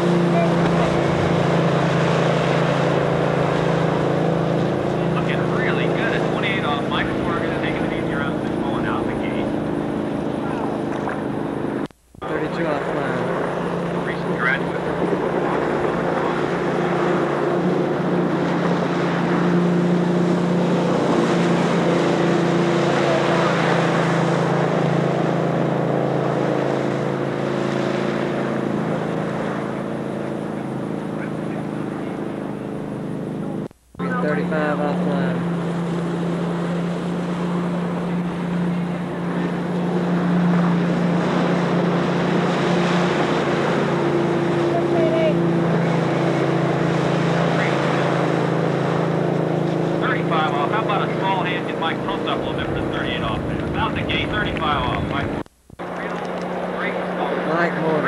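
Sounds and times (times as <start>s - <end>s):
boat engine droning: 0.0s - 58.0s
wind on microphone: 52.4s - 56.7s.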